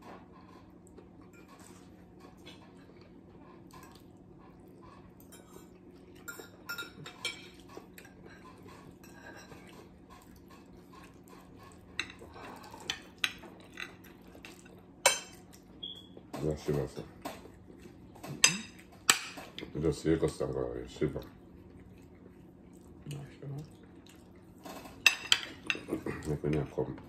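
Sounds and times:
cutlery clinking on plates: 0:05.2 - 0:09.9, 0:24.7 - 0:26.6.

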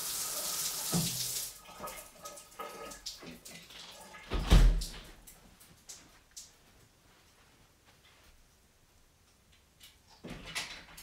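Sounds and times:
shower water running: 0:00.0 - 0:06.8.

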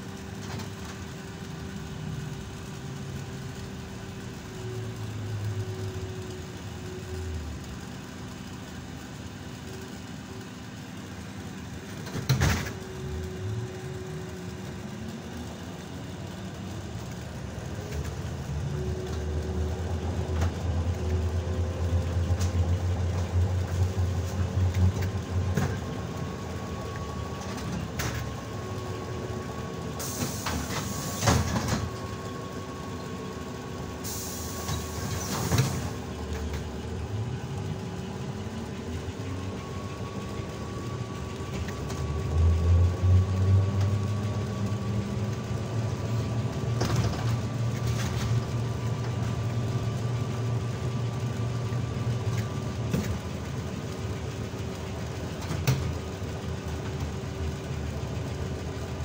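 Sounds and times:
trolleybus electrical whine: 0:00.0 - 0:59.0
air hiss: 0:30.0 - 0:31.7, 0:34.0 - 0:36.0.

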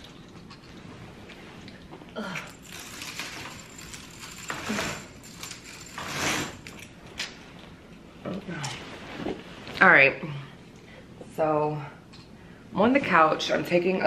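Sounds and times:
bead chain rattling: 0:02.5 - 0:06.9.

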